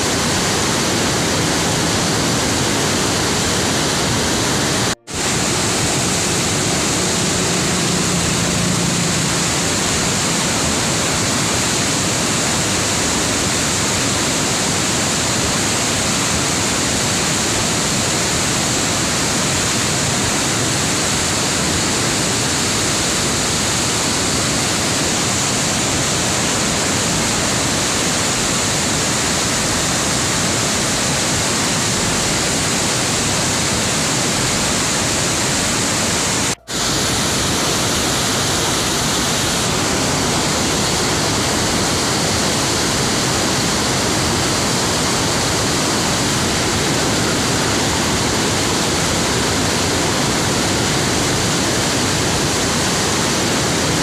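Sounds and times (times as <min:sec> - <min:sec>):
floodwater rushing: 0:00.0 - 0:54.0.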